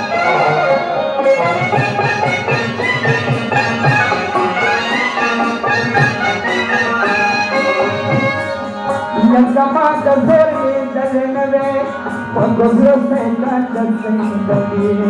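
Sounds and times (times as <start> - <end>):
held instrumental melody: 0.0 - 15.0
steady drum beat: 1.2 - 15.0.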